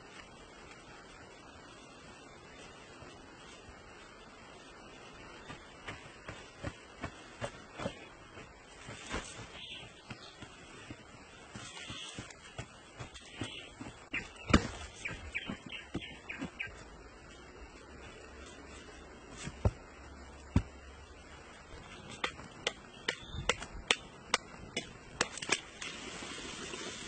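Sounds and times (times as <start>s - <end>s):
wooden knocks in hard earth: 5.5s - 16.8s, 19.3s - 25.7s.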